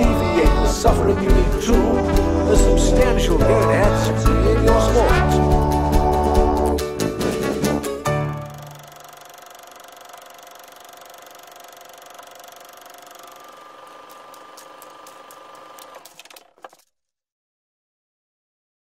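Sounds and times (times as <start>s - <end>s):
film projector whirring: 8.2s - 16.9s.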